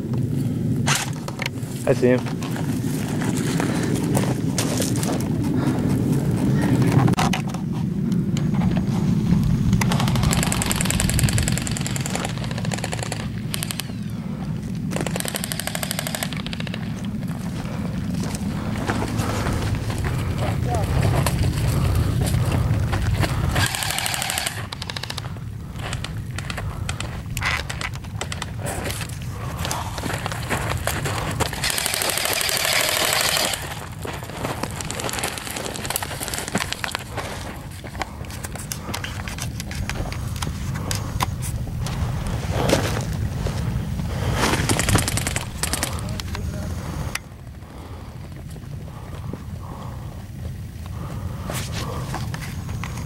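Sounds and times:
low rumble: 0.0s - 53.0s
footsteps on gravel: 1.6s - 7.2s, 17.0s - 24.4s, 25.2s - 53.0s
airsoft rifles firing full-auto: 9.8s - 14.2s, 14.9s - 17.1s, 23.5s - 25.3s, 31.5s - 34.0s.

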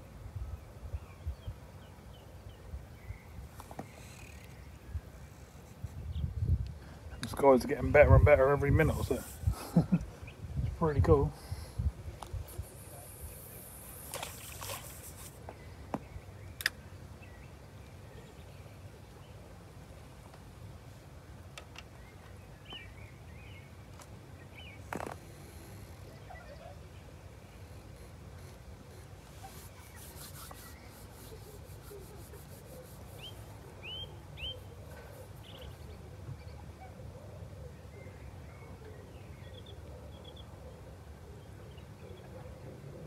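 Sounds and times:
faint distant bird calls: 0.0s - 43.0s
low wind rumble on microphone: 0.2s - 1.9s, 4.7s - 13.3s
bird chirps: 29.5s - 36.9s.

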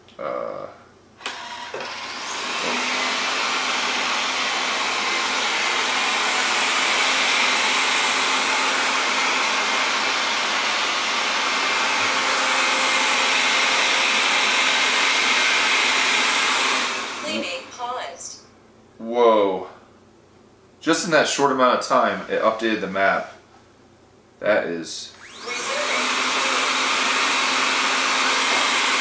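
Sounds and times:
robot vacuum motor whirring: 1.2s - 17.6s, 25.2s - 29.0s.

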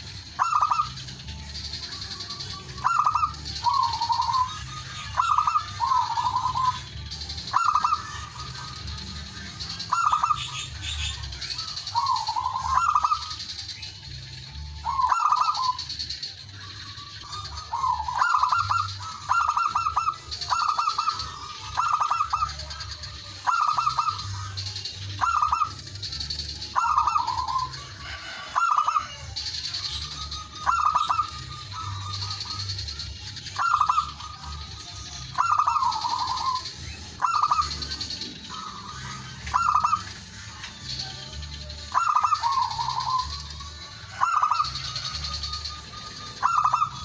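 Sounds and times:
dove cooing: 0.0s - 47.0s.

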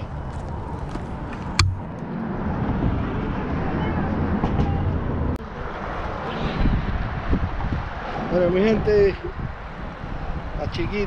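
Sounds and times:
road traffic rumble: 0.0s - 11.0s
sharp click: 1.6s - 2.0s.

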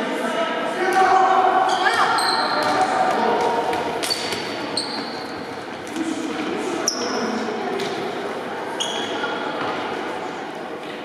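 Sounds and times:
voices echoing in hall: 0.0s - 11.0s
shoes squeaking on court: 1.7s - 8.0s, 8.7s - 9.8s
ball bouncing on hard floor: 1.9s - 6.5s.

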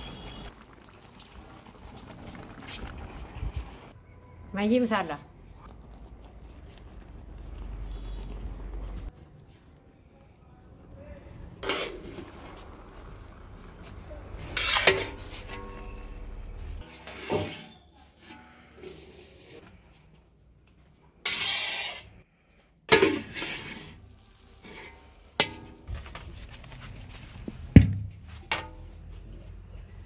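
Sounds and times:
metal spatula scraping iron pan: 11.6s - 12.4s, 14.4s - 19.6s, 21.2s - 22.2s, 22.9s - 24.0s, 24.6s - 25.8s.

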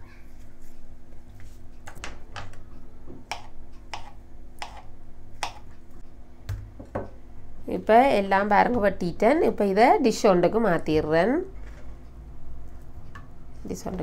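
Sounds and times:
knife cutting on plastic board: 3.3s - 5.6s.

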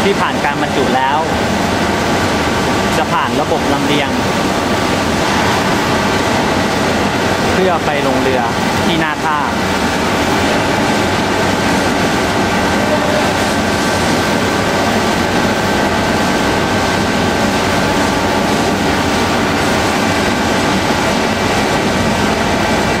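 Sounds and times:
belt conveyor rumbling and rattling: 0.0s - 23.0s.

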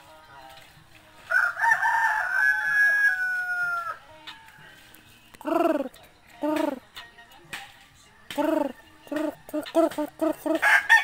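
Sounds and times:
rooster crowing: 1.3s - 4.6s, 10.6s - 11.0s.

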